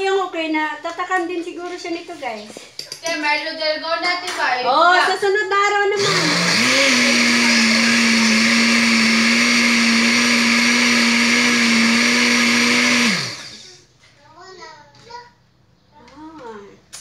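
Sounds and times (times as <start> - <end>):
blender motor running: 6.0 - 13.9.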